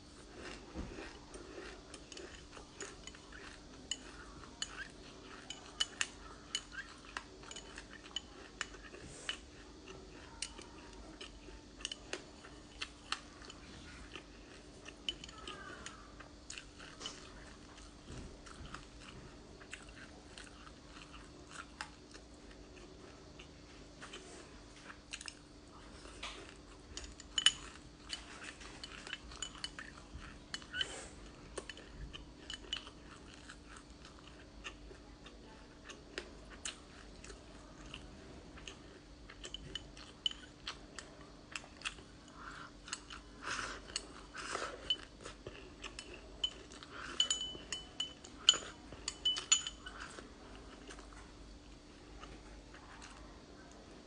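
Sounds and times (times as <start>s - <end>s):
seeds crunching as chewed: 0.0s - 53.9s
metal spoon clinking on glass: 27.0s - 28.2s, 46.4s - 50.0s.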